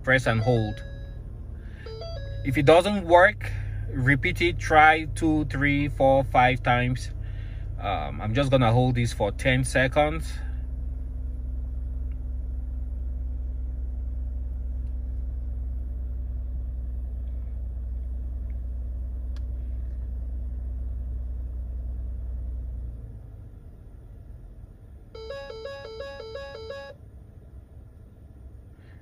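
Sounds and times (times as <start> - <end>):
car engine idling: 0.0 - 29.0
two-tone electronic chime: 0.2 - 1.2, 1.8 - 2.7, 25.2 - 27.0.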